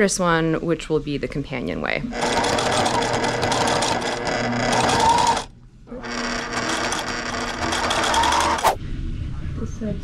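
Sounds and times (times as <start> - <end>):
electric sewing machine running: 2.1 - 8.8.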